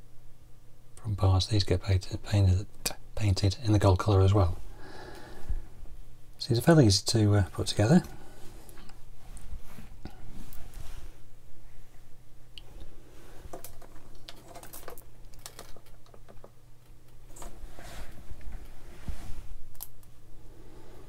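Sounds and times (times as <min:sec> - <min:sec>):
faint low hum: 0:00.0 - 0:21.0
plastic parts clicking and tapping: 0:13.5 - 0:17.5.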